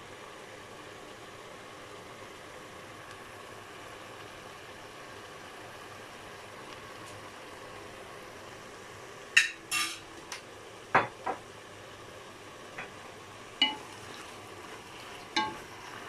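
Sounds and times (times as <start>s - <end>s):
stir-fry sizzling faintly: 0.0s - 16.0s
wooden spatula knocking pot: 13.6s - 13.9s, 15.4s - 15.7s.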